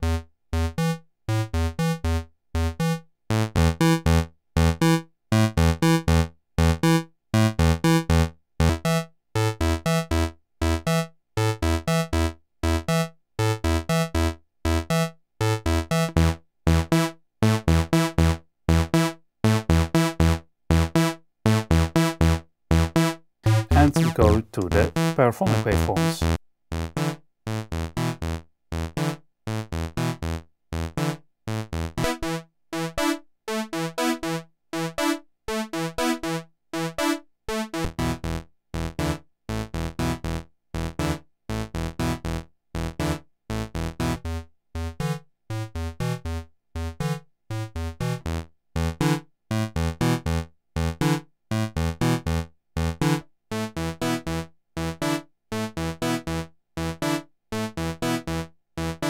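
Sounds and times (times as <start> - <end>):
synthesizer staccato notes: 23.4 - 26.4.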